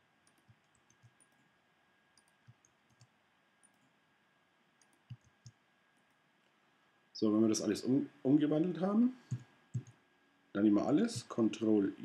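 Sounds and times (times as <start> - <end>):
mouse and keyboard clicks: 4.8 - 6.2.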